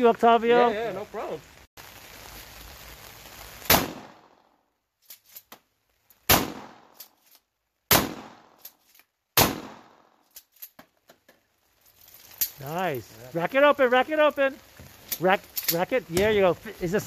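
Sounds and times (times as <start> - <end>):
shotgun shots: 3.7 - 4.4, 6.3 - 7.0, 7.9 - 8.6, 9.4 - 10.1.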